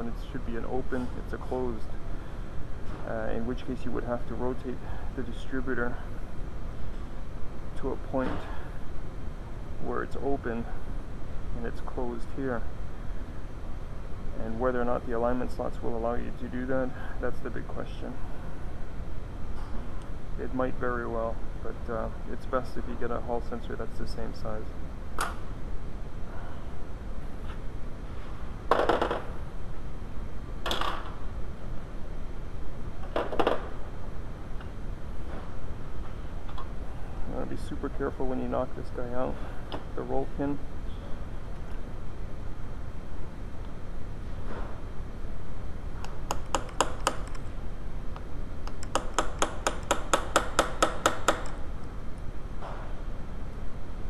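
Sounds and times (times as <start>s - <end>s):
hammer tapping metal: 48.7s - 51.6s.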